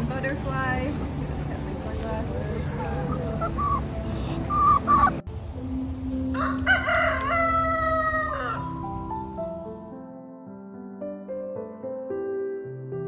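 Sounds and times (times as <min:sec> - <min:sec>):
outdoor background noise: 0:00.0 - 0:09.9
soft music: 0:00.0 - 0:13.0
chicken clucking: 0:01.6 - 0:05.2
rooster crowing: 0:06.3 - 0:08.8.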